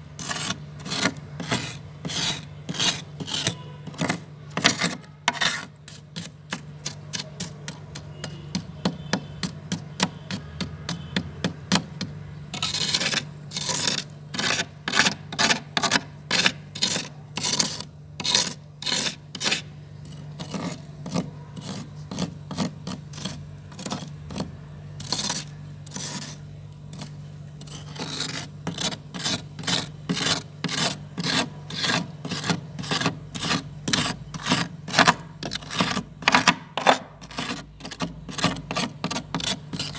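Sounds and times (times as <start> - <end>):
metal spoon scraping frost: 0.0 - 39.9.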